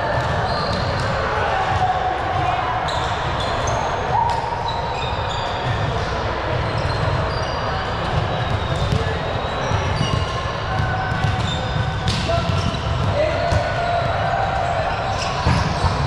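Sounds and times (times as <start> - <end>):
shoe squeaks on court: 0.4 - 1.1, 2.9 - 6.0, 6.6 - 13.1
volleyball hits: 9.8 - 14.4.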